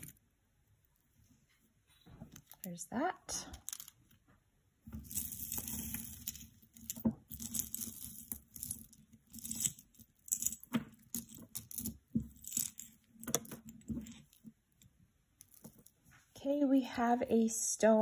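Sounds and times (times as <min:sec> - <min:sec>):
stone beads clicking: 0:05.0 - 0:14.5.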